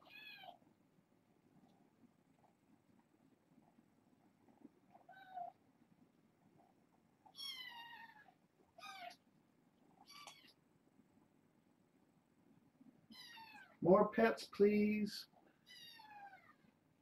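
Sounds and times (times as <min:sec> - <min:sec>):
kittens meowing: 0:00.0 - 0:00.6, 0:04.9 - 0:05.6, 0:07.4 - 0:09.2, 0:10.0 - 0:10.6, 0:13.1 - 0:13.8, 0:15.6 - 0:16.7.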